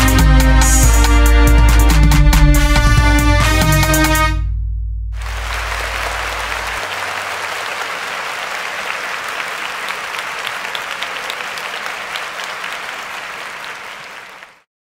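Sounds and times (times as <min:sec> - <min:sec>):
deep bass note: 0:01.3 - 0:06.8
crowd applauding: 0:05.2 - 0:14.7.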